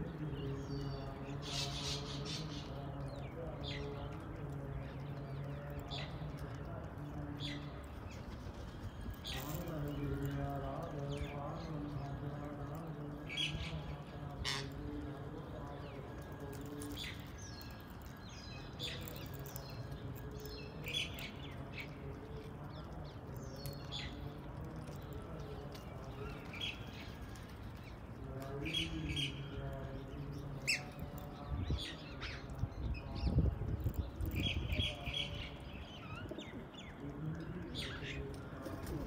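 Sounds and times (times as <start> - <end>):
birds chirping: 0.0 - 39.0.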